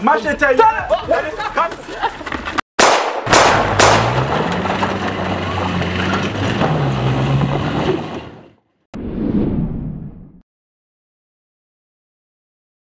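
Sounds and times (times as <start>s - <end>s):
truck engine revving: 3.3s - 8.6s
tyres crunching on gravel: 3.6s - 8.5s.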